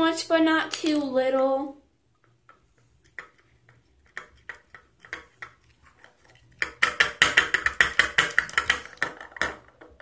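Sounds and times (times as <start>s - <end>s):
stick stirring in bowl: 2.2s - 10.0s.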